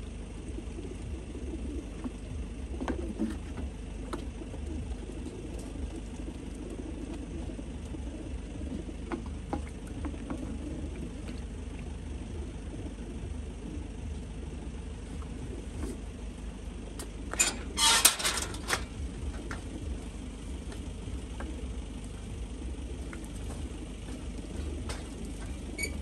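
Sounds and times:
engine idling: 0.0s - 26.0s
loud rattling clatter: 17.4s - 19.0s.

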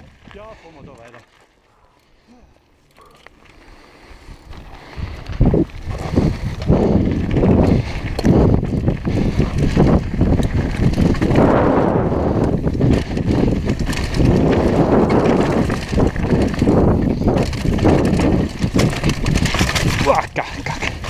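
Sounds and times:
tyres crunching over stones: 0.0s - 3.9s, 12.4s - 21.0s
bike rattling: 0.0s - 21.0s.

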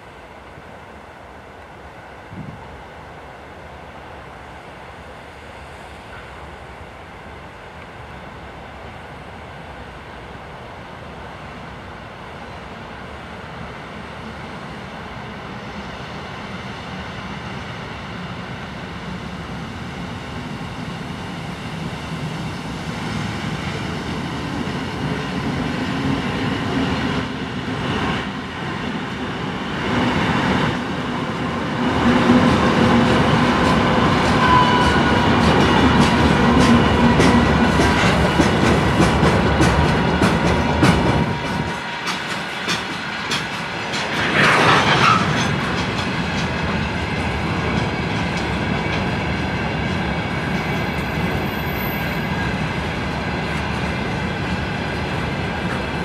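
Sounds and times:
diesel locomotive engine: 0.0s - 56.0s
train wheels clicking over rail joints: 32.7s - 56.0s.

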